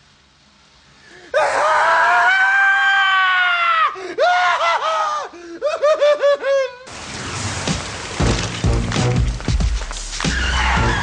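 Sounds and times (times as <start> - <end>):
person screaming: 1.3 - 5.3.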